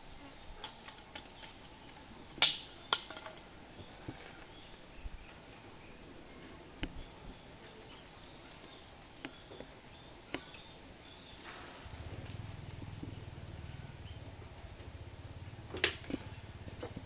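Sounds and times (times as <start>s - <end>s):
high insect hum: 0.0s - 17.0s
sharp snaps: 2.4s - 3.2s.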